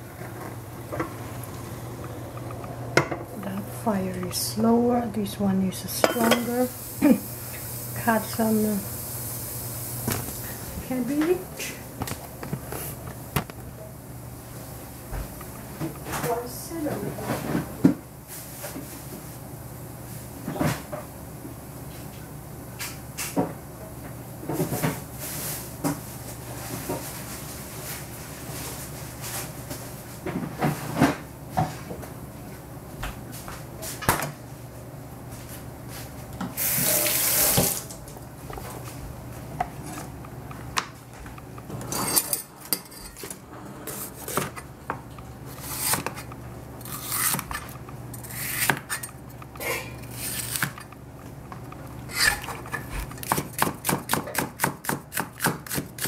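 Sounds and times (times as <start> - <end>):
kitchen tap running: 5.8 - 11.4, 36.5 - 38.6
cleaver chopping on plastic board: 53.2 - 56.0.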